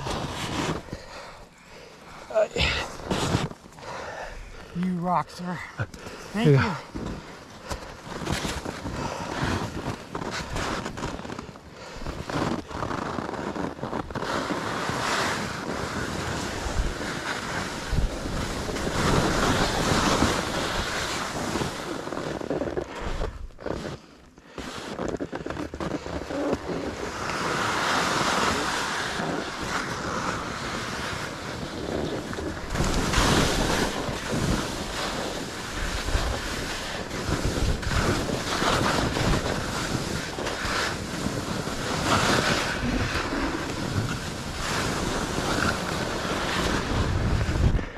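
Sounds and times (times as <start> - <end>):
wind rushing over microphone: 0.0 - 1.0, 12.0 - 22.2, 26.6 - 47.9
edges scraping through snow: 0.0 - 47.9.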